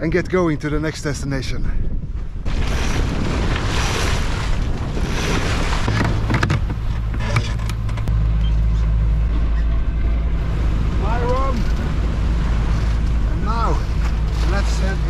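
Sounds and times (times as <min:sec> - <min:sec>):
wind on microphone: 0:00.0 - 0:08.4
water rushing past hull: 0:02.2 - 0:15.0
boat engine drone: 0:02.5 - 0:15.0.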